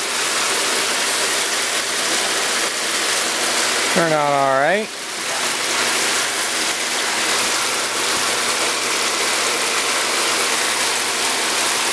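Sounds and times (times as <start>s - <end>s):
water jets spraying: 0.0s - 11.9s.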